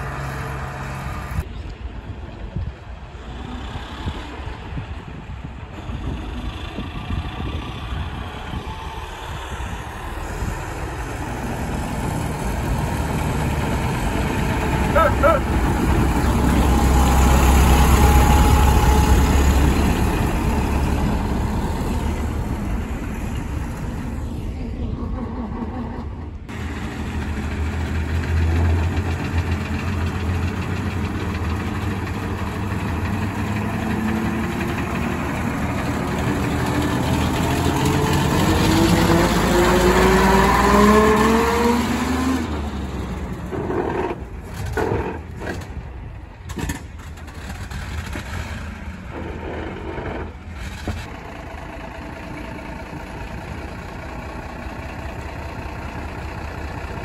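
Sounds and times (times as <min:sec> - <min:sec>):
coach engine accelerating past: 0:03.2 - 0:45.4.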